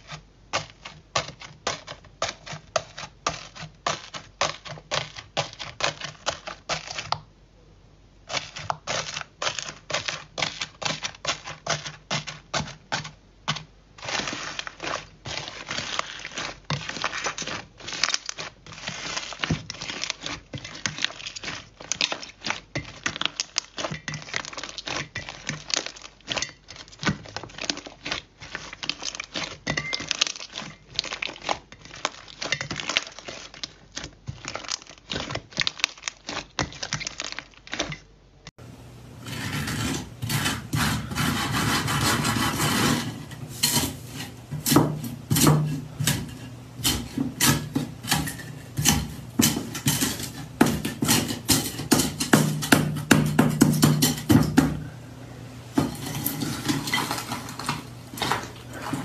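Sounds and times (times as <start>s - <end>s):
slime squeezed crackling and popping: 14.0s - 37.9s.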